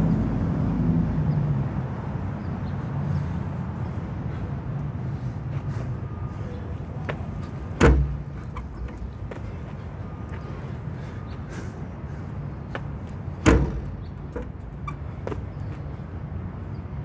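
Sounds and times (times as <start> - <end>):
low traffic rumble: 0.0 - 17.0
feet landing thud: 7.1 - 9.6.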